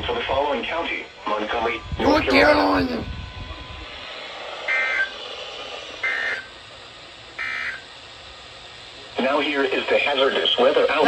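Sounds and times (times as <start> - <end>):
screeching digital data bursts: 6.0 - 6.6, 7.4 - 7.9.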